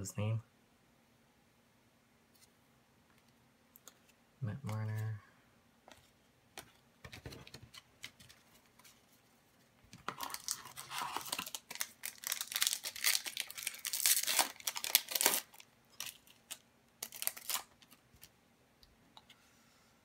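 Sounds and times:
foil wrapper crinkling and tearing: 10.0s - 18.3s.

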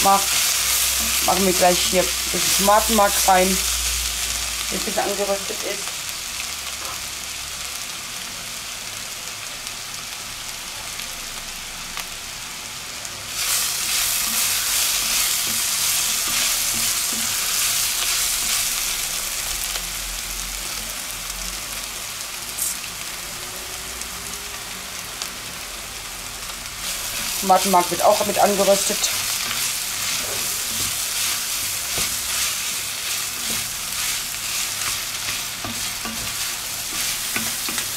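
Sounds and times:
vegetables sizzling in hot oil: 0.0s - 37.9s
wooden spoon stirring: 29.0s - 37.9s.

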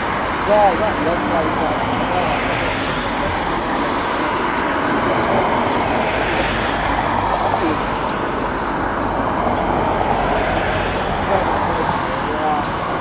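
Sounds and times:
distant jet engines running: 0.0s - 13.0s.

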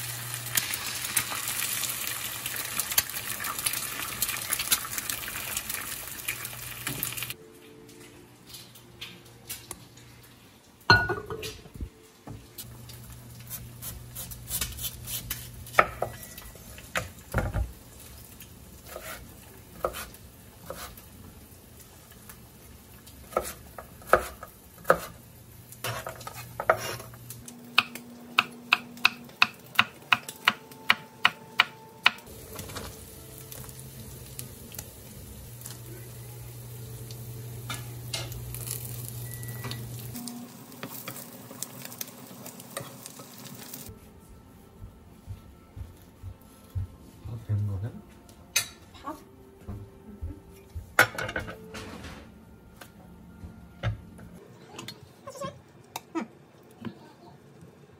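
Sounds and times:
food sizzling in a frying pan: 0.0s - 7.4s, 12.4s - 30.9s, 32.2s - 43.9s.

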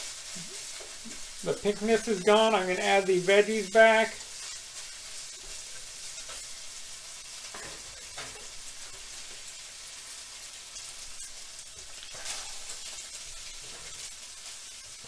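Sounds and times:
meat sizzling in a skillet: 0.0s - 15.0s
spatula scraping and stirring: 4.2s - 15.0s.

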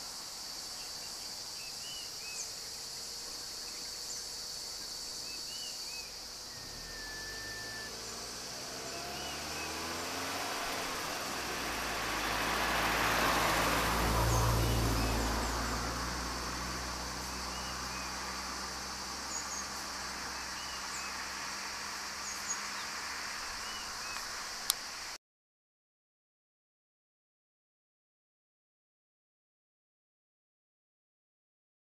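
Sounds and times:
insects chirring: 0.0s - 25.2s
bird chirps: 0.7s - 11.8s, 17.2s - 21.2s
car driving past: 5.6s - 25.0s.

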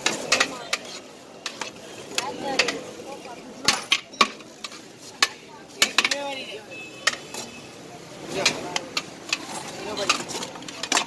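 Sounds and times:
metal plates scraping pots: 8.3s - 11.0s.

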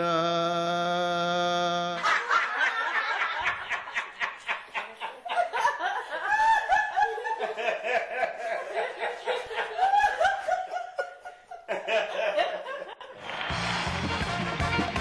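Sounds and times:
person laughing: 2.0s - 13.2s.

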